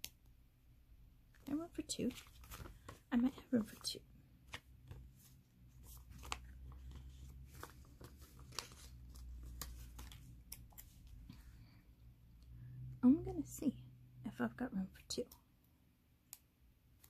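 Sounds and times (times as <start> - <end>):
low steady hum: 0.0 - 17.0
paper sticker sheets rustling: 1.4 - 11.3.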